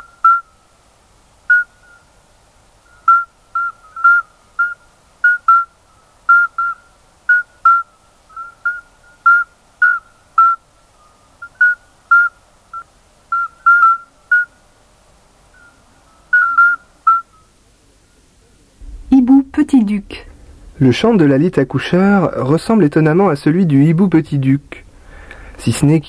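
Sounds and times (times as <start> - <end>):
toads calling: 0.0 - 0.6, 1.4 - 2.2, 2.8 - 14.7, 15.5 - 17.6.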